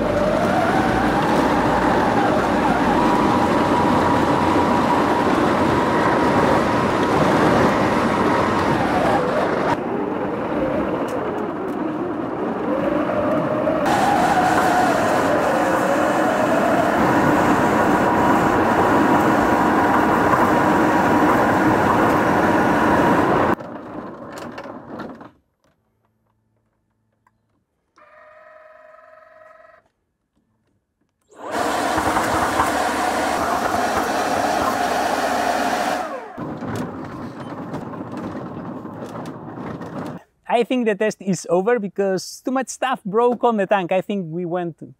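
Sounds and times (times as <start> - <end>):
plastic tracks running over ground: 0.0 - 26.6, 31.4 - 40.3
electric motor whine: 31.3 - 36.6.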